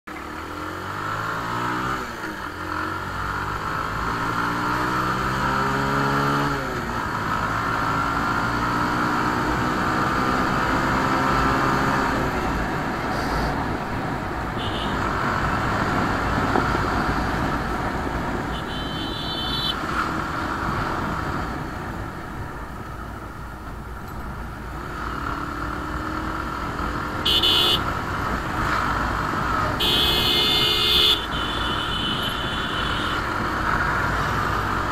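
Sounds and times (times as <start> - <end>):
motorcycle engine accelerating: 0.3 - 13.6
vehicle horns beeping: 14.6 - 15.1, 18.4 - 19.9, 27.2 - 27.9, 29.7 - 33.3.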